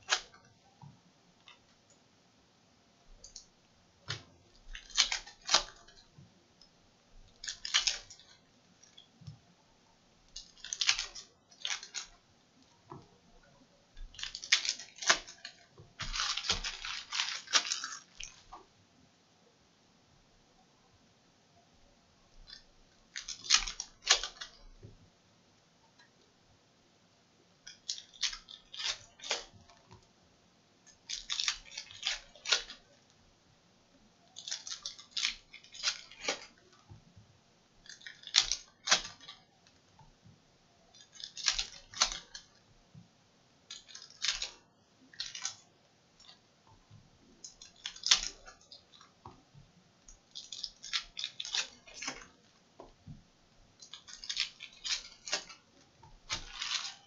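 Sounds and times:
cards rustling: 0:14.2 - 0:18.4, 0:53.9 - 0:55.6, 0:56.2 - 0:57.0.

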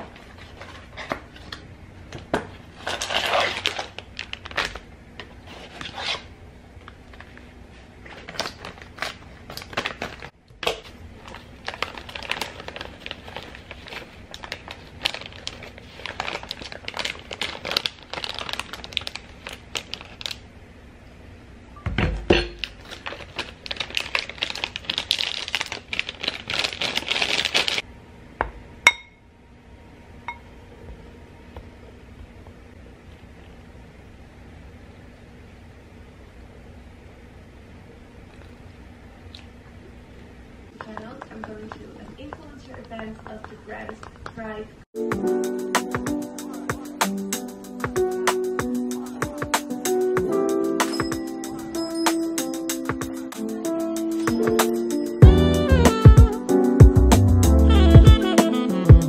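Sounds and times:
packaging crinkling and rustling: 0:02.7 - 0:06.3, 0:07.0 - 0:20.4, 0:22.6 - 0:27.8.

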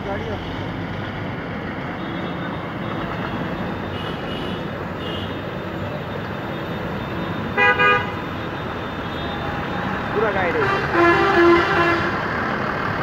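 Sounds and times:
rushing street noise: 0:00.0 - 0:13.0
vehicle horn toots: 0:07.6 - 0:08.2, 0:10.5 - 0:12.2.

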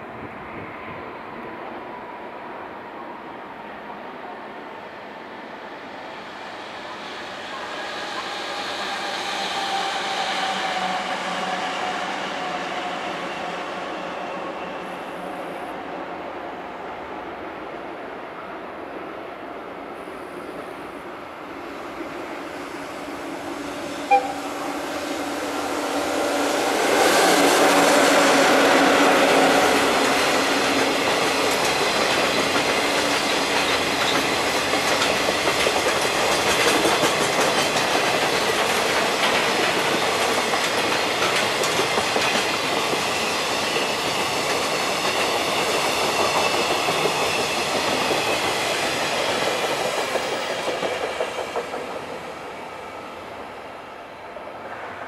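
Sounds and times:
electric locomotive hum: 0:20.2 - 0:55.0
short sharp sound: 0:24.1 - 0:24.8
train wheels clattering over rail joints: 0:30.0 - 0:52.3.

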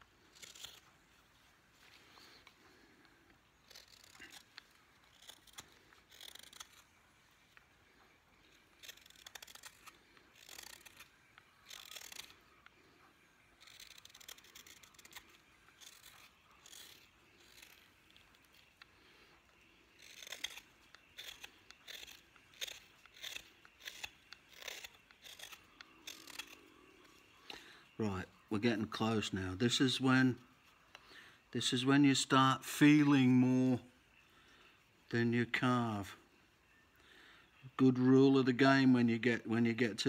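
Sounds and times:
knife scraping wood: 0:00.2 - 0:01.1, 0:03.6 - 0:07.0, 0:08.4 - 0:12.5, 0:13.5 - 0:19.2, 0:19.9 - 0:27.3.

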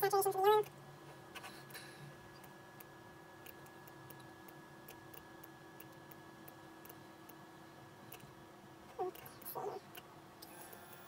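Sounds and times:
faint hum: 0:00.0 - 0:11.0.

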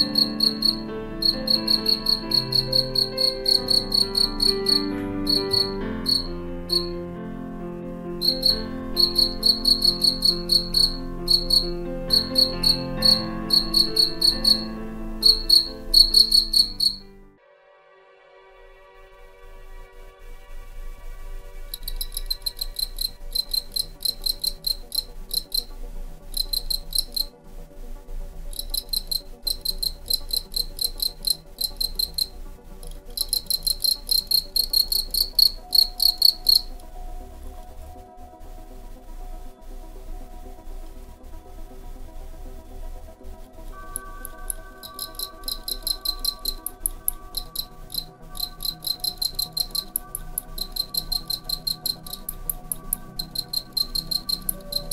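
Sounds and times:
cricket chirping: 0:00.0 - 0:07.0, 0:07.8 - 0:17.1, 0:21.7 - 0:27.4, 0:28.5 - 0:36.9, 0:43.7 - 0:54.9
soft background music: 0:00.0 - 0:54.9.

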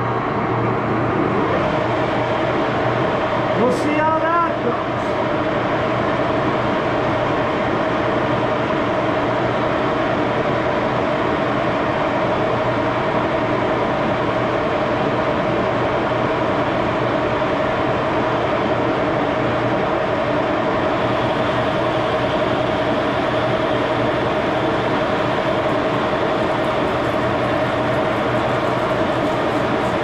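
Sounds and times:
lathe running: 0:20.6 - 0:30.0.

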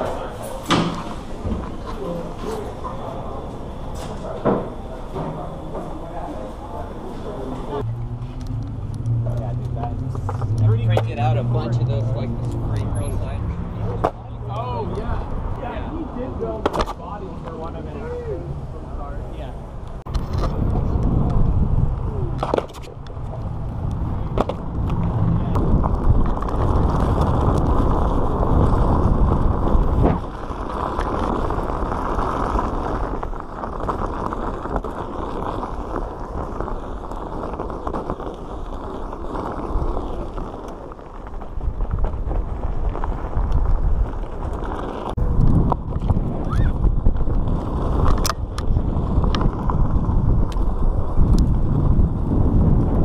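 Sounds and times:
tyre rumbling on pavement: 0:00.0 - 0:53.0
wind on microphone: 0:19.6 - 0:53.0.

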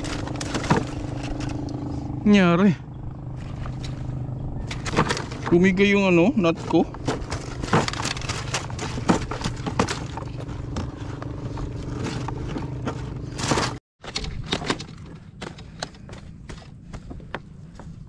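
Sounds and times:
knocks clicks and scrapes: 0:00.0 - 0:01.8, 0:03.4 - 0:05.7, 0:06.4 - 0:18.0
steady low hum: 0:00.0 - 0:13.8.

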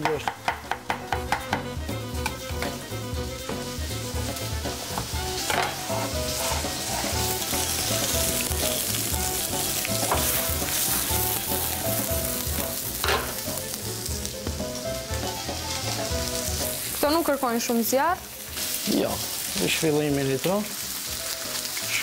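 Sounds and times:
frying pan knocks: 0:00.0 - 0:02.8, 0:04.9 - 0:05.9, 0:13.0 - 0:13.4
vegetables sizzling in a frying pan: 0:00.2 - 0:22.0.

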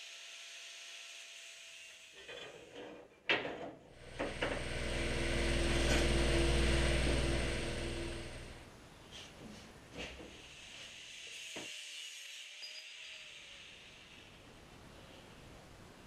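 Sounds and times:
steady low hum: 0:04.0 - 0:08.7.

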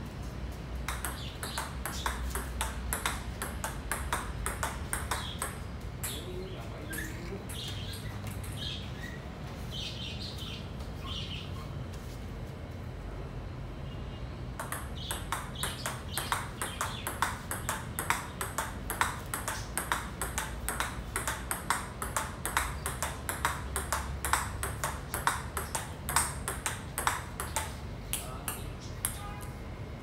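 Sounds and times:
ping pong ball on paddles: 0:00.8 - 0:08.8, 0:14.6 - 0:29.5
ball bouncing on table: 0:00.9 - 0:06.3, 0:14.6 - 0:29.4.

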